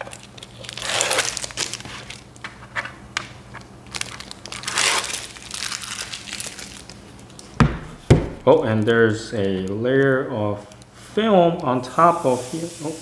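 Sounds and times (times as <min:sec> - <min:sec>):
tape ripping off plastic: 0:00.0 - 0:02.2, 0:03.9 - 0:07.6
small crackles: 0:03.6 - 0:07.6.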